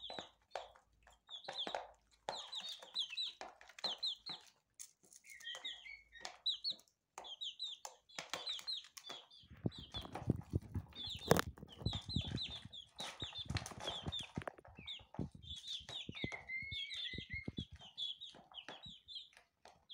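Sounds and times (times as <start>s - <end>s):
chicks peeping: 0.0s - 19.9s.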